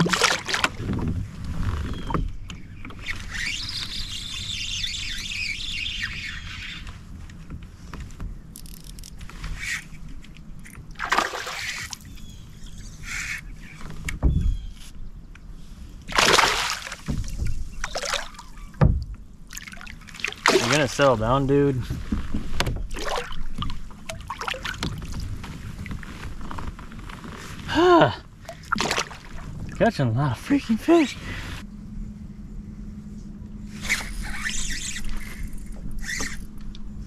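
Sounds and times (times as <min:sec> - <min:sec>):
water splashing around kayak: 0:00.0 - 0:05.2, 0:10.7 - 0:12.2, 0:16.0 - 0:26.7, 0:28.3 - 0:30.1.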